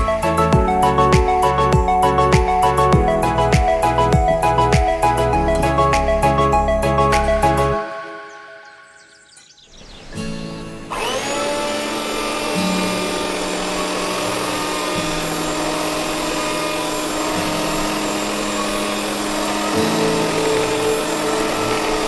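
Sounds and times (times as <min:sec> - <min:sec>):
electric hand mixer whining: 0:10.9 - 0:22.0.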